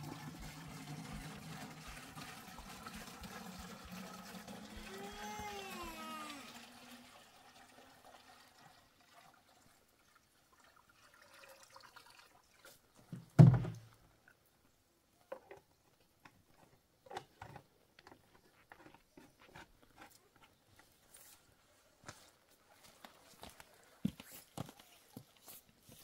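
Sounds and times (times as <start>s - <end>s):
water pouring into plastic container: 0.0s - 12.9s
plastic container thump: 13.4s - 13.9s.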